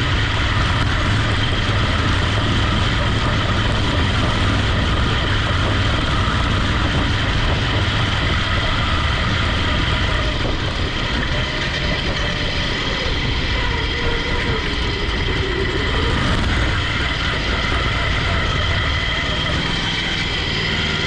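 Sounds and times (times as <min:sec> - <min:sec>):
small engine running: 0:00.0 - 0:21.0.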